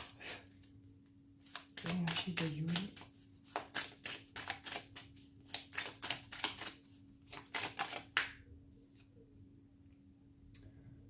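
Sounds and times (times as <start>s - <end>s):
cards being shuffled: 1.4s - 8.4s.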